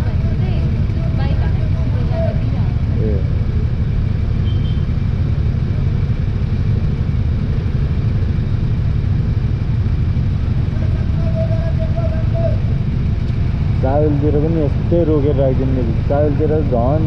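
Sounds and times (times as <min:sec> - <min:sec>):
motorcycles idling: 0:00.0 - 0:17.0
faint held tone: 0:04.4 - 0:04.9.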